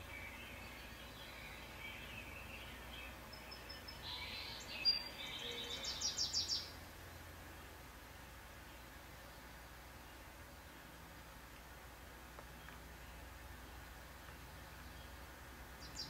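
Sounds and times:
songbirds chirping through speakers: 0.0 - 7.8, 12.4 - 16.0.

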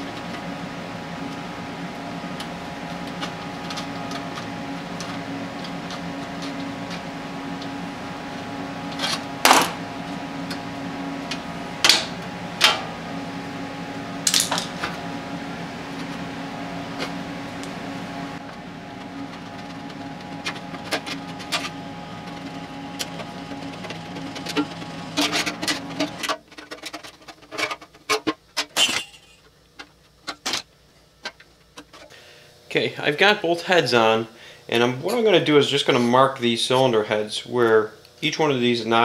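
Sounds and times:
shop hum: 0.0 - 39.0
sharp metallic clanks: 28.7 - 29.4.

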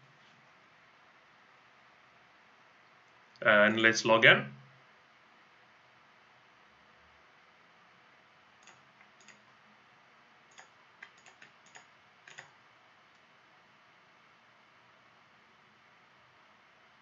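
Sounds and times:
faint hiss: 0.0 - 17.0
computer mouse and keyboard clicks: 8.6 - 9.5, 10.5 - 12.6.

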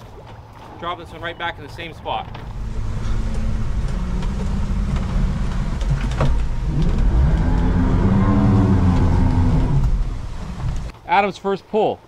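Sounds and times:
water rushing along hull: 0.0 - 11.3
boat motor running: 2.3 - 10.9.

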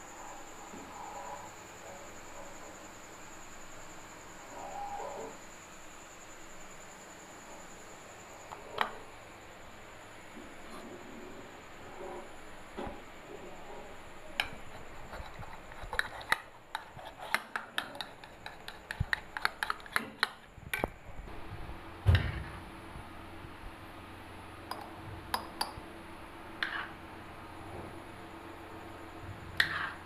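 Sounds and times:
utensil tapping against bowl: 15.2 - 20.9.

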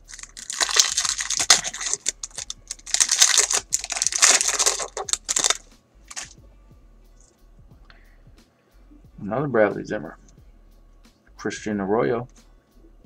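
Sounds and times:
foil wrapper tearing and crinkling: 0.0 - 6.4.

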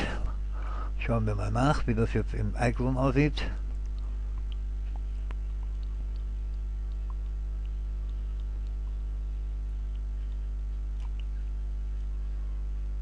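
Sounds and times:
electrical mains hum: 0.0 - 13.0
faint ticks: 2.6 - 13.0.

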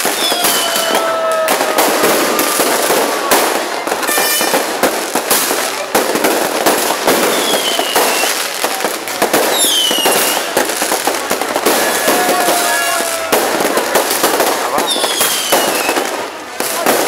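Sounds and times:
falling firework whistle: 0.0 - 4.7, 7.2 - 8.4, 9.5 - 10.6, 14.8 - 16.0
fireworks popping and crackling: 0.0 - 17.0.

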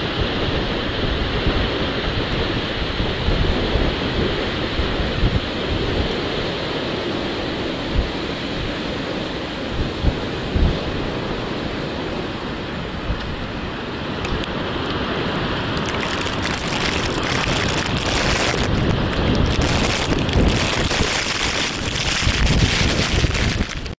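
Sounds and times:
rushing roar of ash cloud: 0.0 - 23.9
wind buffeting microphone: 0.0 - 23.9
dense crackle: 15.8 - 23.9.

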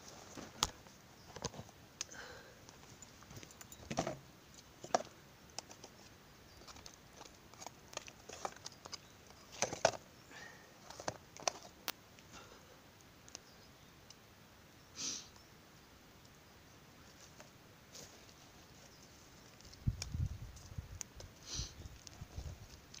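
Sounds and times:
campfire crackling: 10.2 - 23.0.

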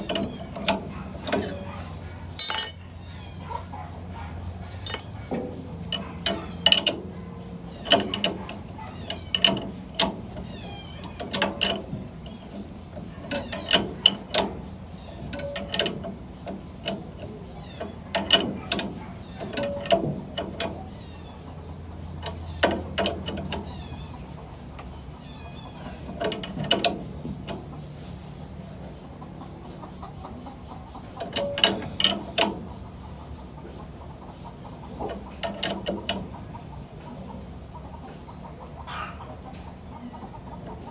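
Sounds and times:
hand tool metallic clicking: 2.4 - 3.2, 4.8 - 5.2.

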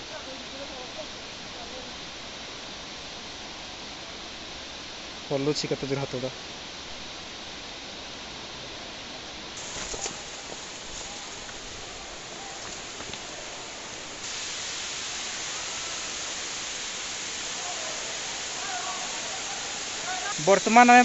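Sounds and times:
waterfall rushing: 9.6 - 21.0.

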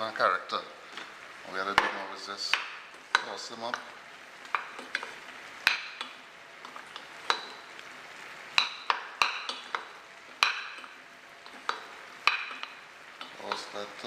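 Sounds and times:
spoon knocking steel saucepan: 7.2 - 7.6, 8.6 - 10.9, 11.7 - 13.7.

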